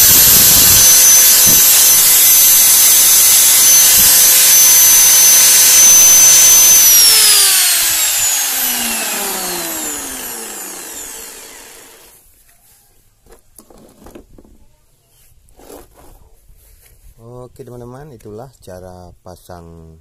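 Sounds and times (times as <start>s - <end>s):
angle grinder whining down: 0.0s - 12.2s.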